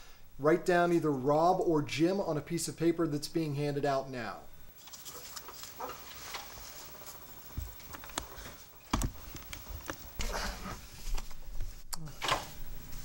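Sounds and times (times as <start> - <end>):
paper slips shuffled: 4.8 - 11.8.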